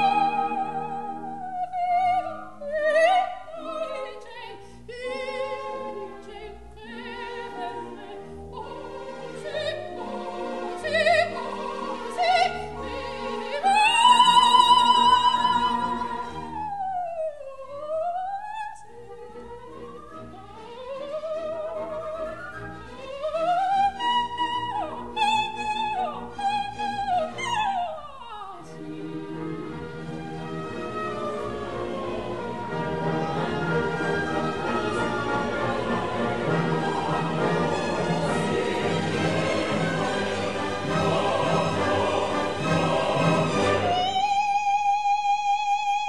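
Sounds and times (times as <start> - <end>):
operatic soprano singing: 0.0 - 46.0
orchestra playing: 28.7 - 44.2.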